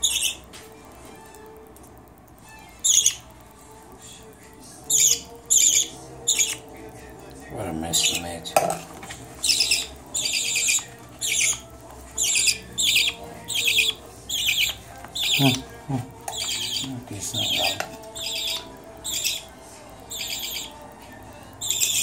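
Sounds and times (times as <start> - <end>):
baby budgie begging calls: 0.0 - 0.5, 2.4 - 3.4, 4.8 - 6.7, 7.7 - 8.6, 9.4 - 21.0, 21.6 - 22.0.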